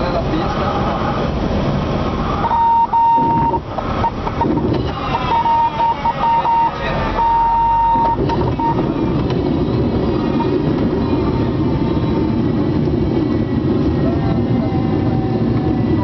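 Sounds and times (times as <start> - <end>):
aircraft engine: 0.0 - 5.9, 6.7 - 16.0
cockpit warning horn beeping: 2.4 - 8.9.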